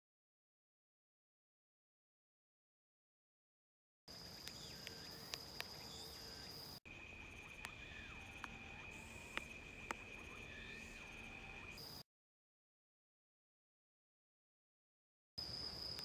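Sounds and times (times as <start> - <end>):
insects trilling: 4.1 - 12.0, 15.4 - 16.0.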